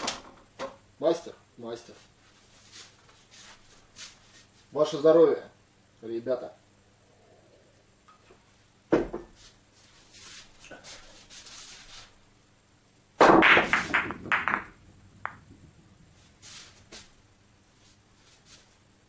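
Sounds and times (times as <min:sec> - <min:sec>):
cue striking ball: 0:13.2 - 0:15.8
billiard balls clattering: 0:13.2 - 0:16.0.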